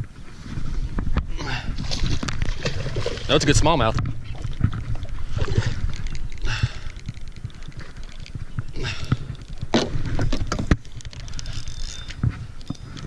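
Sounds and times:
thumps and knocks in a boat: 0.9 - 6.0, 6.6 - 11.5.

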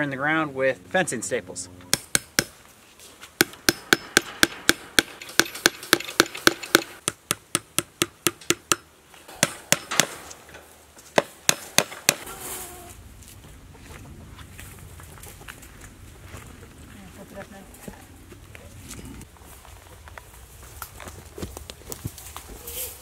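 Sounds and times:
hammer striking fencing staples: 3.4 - 10.4.

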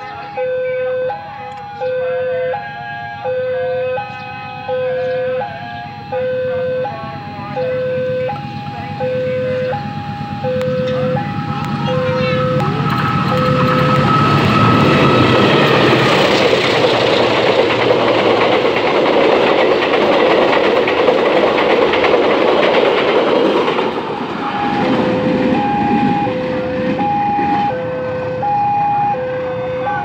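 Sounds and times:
level crossing alarm ringing: 0.0 - 30.0
train wheels clattering: 9.8 - 27.8.

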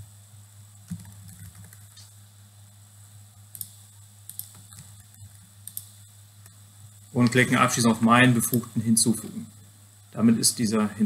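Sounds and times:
steady low hum: 0.0 - 11.0
computer mouse clicks: 0.9 - 2.1, 3.5 - 6.6.

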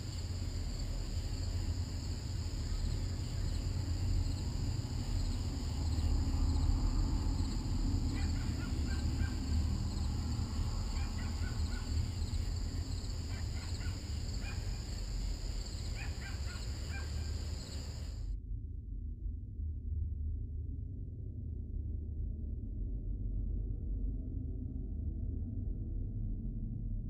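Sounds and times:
low rumble: 0.0 - 13.4
high insect trill: 0.0 - 18.2
short bird-like calls: 15.8 - 18.1.

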